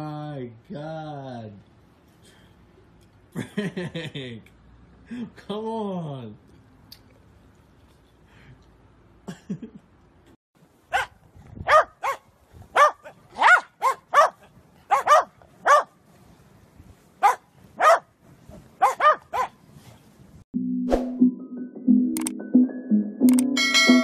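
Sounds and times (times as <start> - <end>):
dogs barking: 10.9 - 16.0, 17.2 - 18.1, 18.8 - 19.6.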